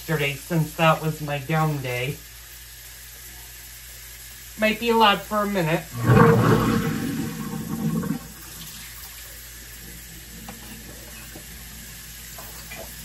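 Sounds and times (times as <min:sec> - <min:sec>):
garbage disposal running: 0:00.0 - 0:13.0
water rushing down drain: 0:05.9 - 0:09.2.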